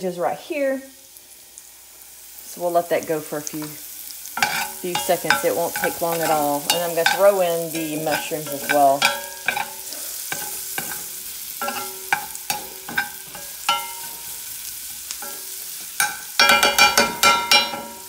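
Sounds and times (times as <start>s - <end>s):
vegetables sizzling in a skillet: 0.0s - 18.0s
metal spoon scraping a pan: 4.4s - 18.0s.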